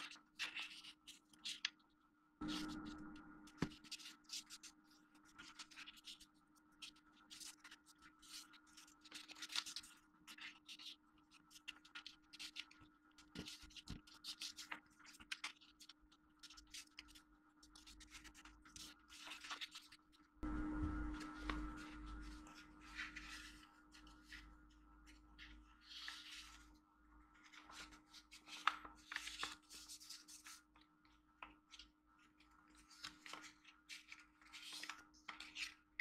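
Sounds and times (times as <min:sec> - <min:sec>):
paper folding and rustling: 0:00.0 - 0:20.3, 0:21.1 - 0:36.0
music: 0:02.4 - 0:03.7, 0:20.4 - 0:23.0.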